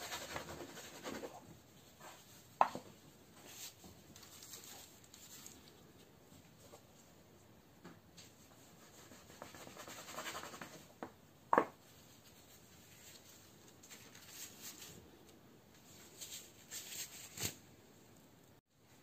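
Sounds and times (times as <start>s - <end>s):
hands rubbing pastry dough: 8.4s - 11.0s.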